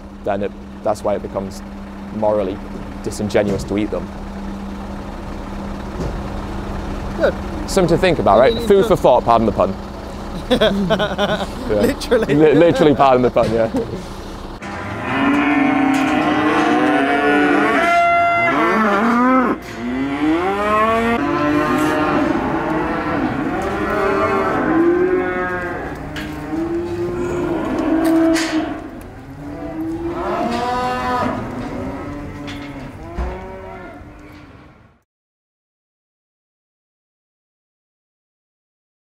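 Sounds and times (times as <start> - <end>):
cattle mooing: 5.8 - 9.2, 14.0 - 34.7.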